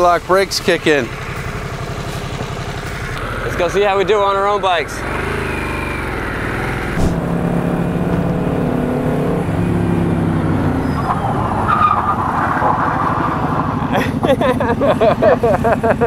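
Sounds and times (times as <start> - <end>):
motorcycle engines running: 0.0 - 16.0
short rushing noise: 6.9 - 7.4.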